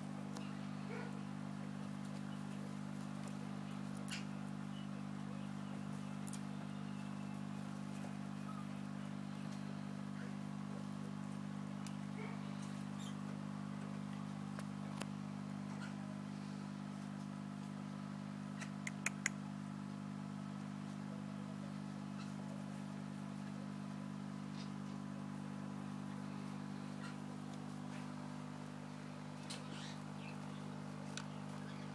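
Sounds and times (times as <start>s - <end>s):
low machine hum: 0.0s - 31.9s
sharp clicks: 18.6s - 19.4s.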